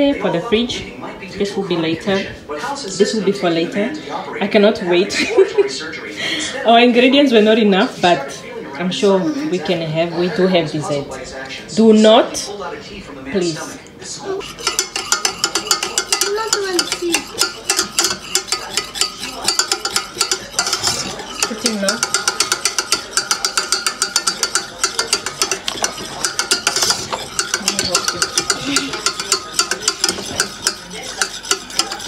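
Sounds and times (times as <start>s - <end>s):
whisk scraping metal pot: 14.4s - 32.0s.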